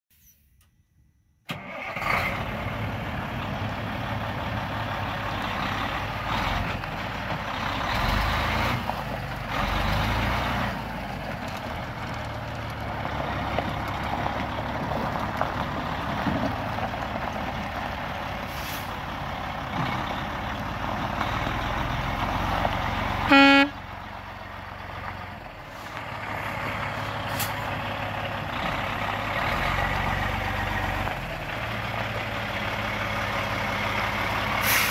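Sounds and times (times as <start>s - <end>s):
diesel truck engine running: 1.5s - 34.9s
truck horn blast: 23.2s - 23.9s.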